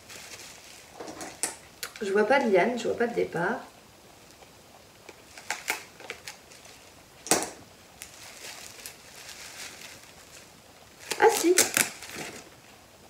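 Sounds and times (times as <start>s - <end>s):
bubble wrap crinkling: 0.0s - 2.5s, 5.0s - 12.8s.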